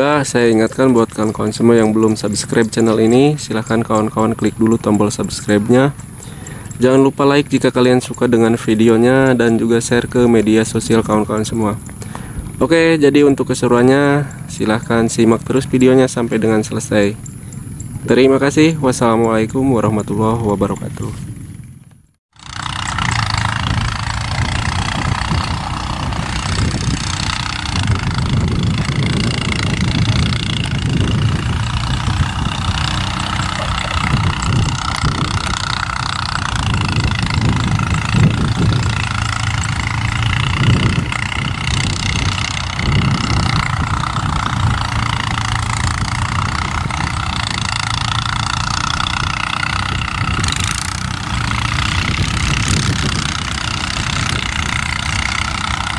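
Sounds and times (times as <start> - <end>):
diesel locomotive engine drone: 0.0 - 55.9.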